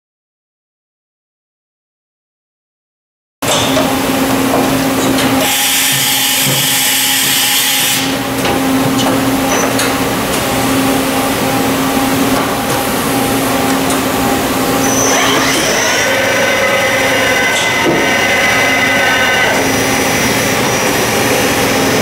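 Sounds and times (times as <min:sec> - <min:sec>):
machinery hum: 0:03.4 - 0:22.0
rising machine whine: 0:10.6 - 0:22.0.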